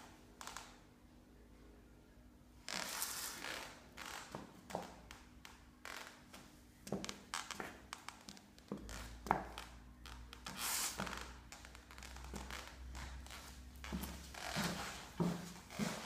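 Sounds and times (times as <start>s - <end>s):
faint low hum: 0.0s - 2.7s
high heels clicking on tiles: 6.9s - 16.0s.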